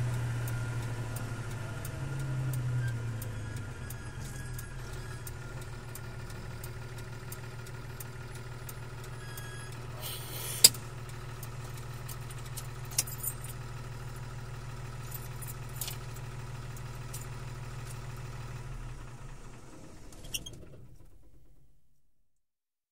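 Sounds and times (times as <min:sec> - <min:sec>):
truck diesel engine running: 0:00.0 - 0:21.5
clicks inside truck cab: 0:10.6 - 0:13.6.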